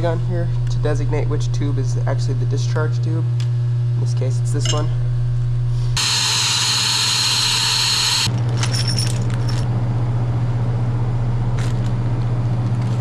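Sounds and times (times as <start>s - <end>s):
steady low hum: 0.0s - 13.0s
metal clinks: 8.6s - 9.7s.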